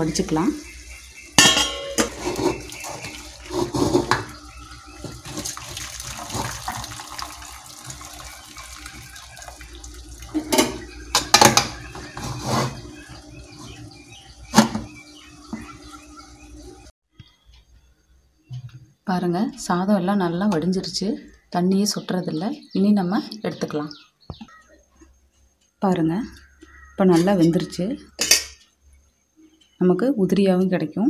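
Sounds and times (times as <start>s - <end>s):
water pouring from a pot: 1.7s - 13.9s.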